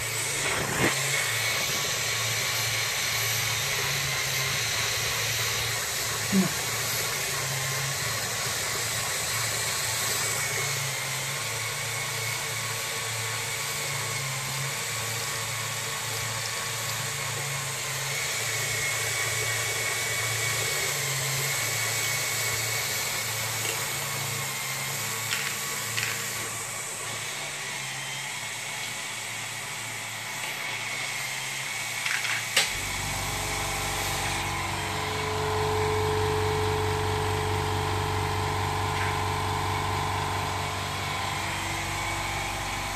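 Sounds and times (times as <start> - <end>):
toy motors whirring and clicking: 0.0 - 33.0
air compressor humming: 0.0 - 42.9.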